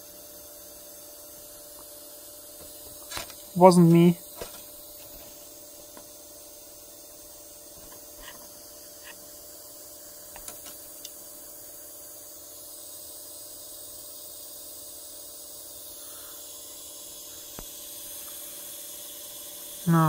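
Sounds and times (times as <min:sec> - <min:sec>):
faint hum: 0:00.0 - 0:20.0
background hiss: 0:07.9 - 0:20.0.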